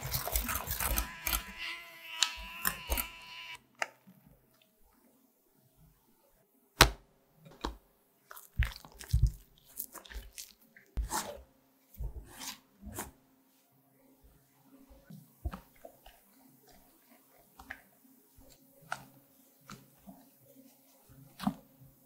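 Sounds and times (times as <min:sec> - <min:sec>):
wet squelches and scrapes in bowl: 0:00.0 - 0:01.7, 0:08.2 - 0:13.7, 0:14.8 - 0:22.0.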